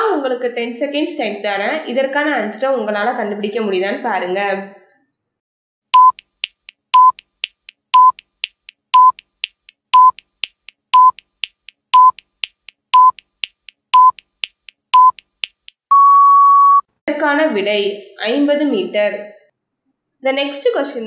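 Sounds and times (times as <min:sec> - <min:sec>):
short even beeps: 0:06.0 - 0:06.3, 0:06.9 - 0:07.3, 0:08.0 - 0:08.3, 0:09.0 - 0:09.2, 0:10.0 - 0:10.3, 0:11.0 - 0:11.3, 0:12.0 - 0:12.3, 0:13.0 - 0:13.3, 0:14.0 - 0:14.3, 0:15.0 - 0:15.3, 0:15.9 - 0:16.9
faint timer ticks: 0:06.0 - 0:15.9.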